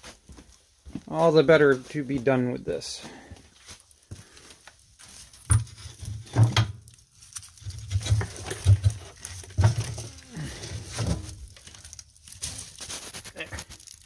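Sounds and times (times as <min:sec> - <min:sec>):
dull thumps and knocks: 0:07.9 - 0:10.2.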